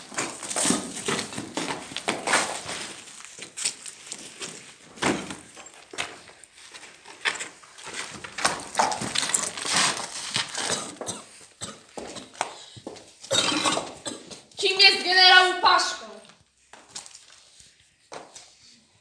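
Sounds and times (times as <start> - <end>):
knocks and thumps of scuffle: 0.0 - 3.6, 4.4 - 6.4, 7.2 - 11.1.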